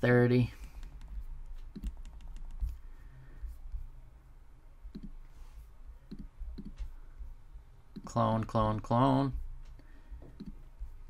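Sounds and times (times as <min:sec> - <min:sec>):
low steady hum: 0:00.0 - 0:11.0
computer mouse clicking: 0:00.6 - 0:02.8, 0:04.9 - 0:05.2, 0:06.1 - 0:06.9, 0:09.6 - 0:10.6.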